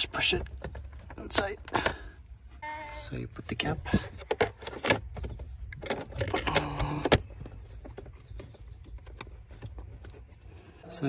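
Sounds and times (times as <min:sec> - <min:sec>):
plastic cover rattling and scraping: 0:03.9 - 0:10.3.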